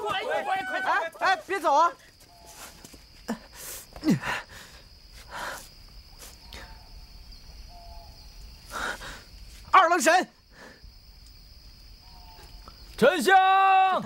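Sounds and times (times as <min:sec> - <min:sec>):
high insect drone: 0:00.0 - 0:14.0
faint bird chirps: 0:06.1 - 0:08.9, 0:11.8 - 0:13.2.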